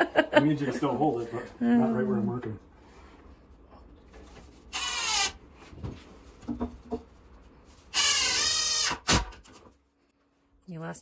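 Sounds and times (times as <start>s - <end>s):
cordless drill driving a screw: 4.7s - 5.4s, 7.9s - 9.3s.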